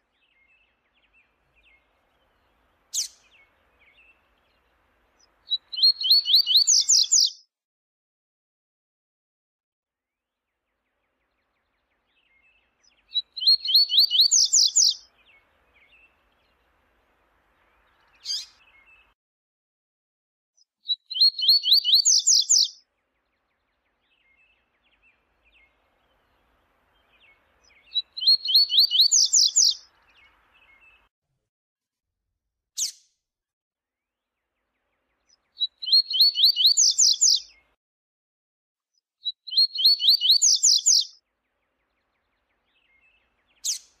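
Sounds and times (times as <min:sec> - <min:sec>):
bird singing sharp high notes: 0:21.1 - 0:22.7, 0:27.0 - 0:29.9, 0:39.5 - 0:41.2.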